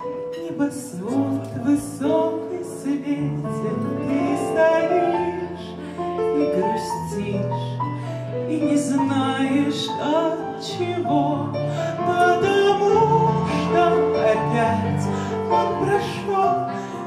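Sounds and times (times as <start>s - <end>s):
small live band playing: 0.0s - 17.0s.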